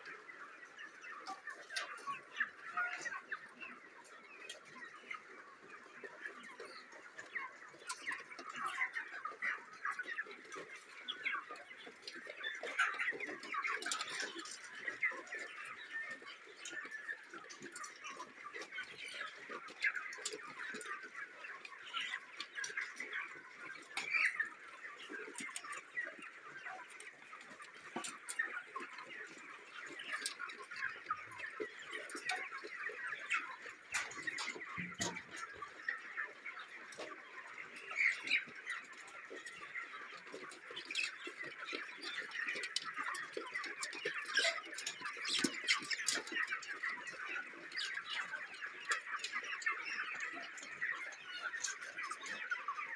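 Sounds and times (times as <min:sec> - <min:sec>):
flock of chickens peeping and clucking: 0:00.0 - 0:52.9.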